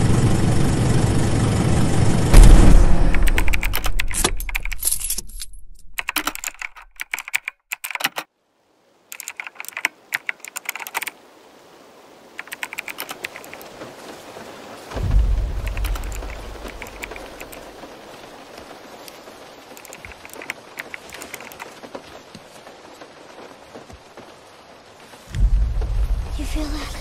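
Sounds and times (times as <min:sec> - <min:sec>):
low rumble: 0:00.0 - 0:04.1
keyboard typing clicks: 0:03.1 - 0:04.8, 0:06.0 - 0:08.3, 0:09.1 - 0:11.2, 0:12.4 - 0:13.7, 0:15.6 - 0:17.6, 0:19.7 - 0:21.7.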